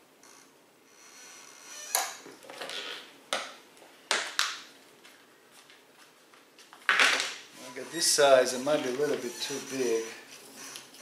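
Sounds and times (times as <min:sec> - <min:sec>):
light rustling and scraping: 0:07.6 - 0:11.0.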